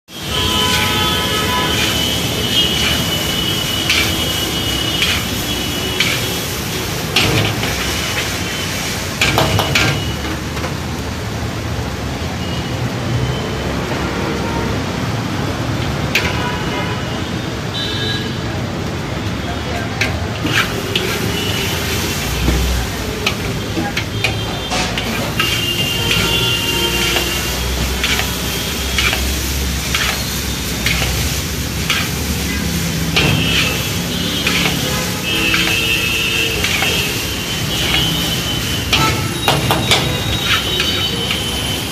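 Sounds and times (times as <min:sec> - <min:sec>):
road traffic rumble: 0:00.0 - 0:41.9
metal utensil clanking against wok: 0:00.3 - 0:08.4, 0:09.2 - 0:10.8, 0:15.8 - 0:16.4, 0:19.8 - 0:41.6.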